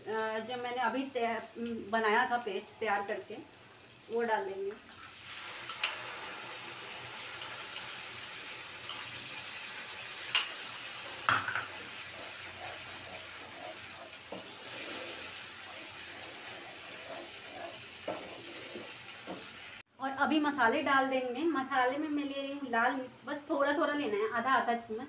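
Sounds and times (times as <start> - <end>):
masala sizzling in a frying pan: 0.0 - 19.9
spatula knocking against pan: 11.2 - 11.8
paste scraped from a bowl: 12.1 - 18.9.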